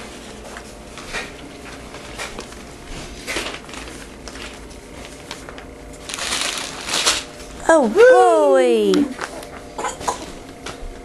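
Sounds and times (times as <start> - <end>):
wrapping paper rustling: 0.4 - 9.6
paper tearing: 5.3 - 7.3.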